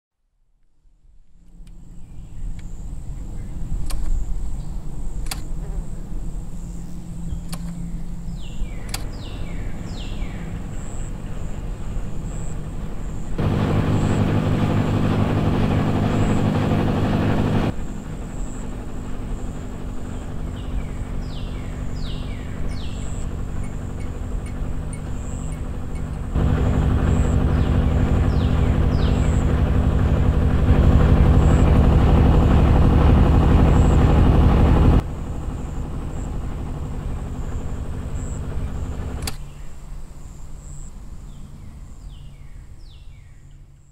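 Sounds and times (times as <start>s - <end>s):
engine running: 1.3s - 41.7s
birds chirping: 1.8s - 17.7s, 19.3s - 36.4s.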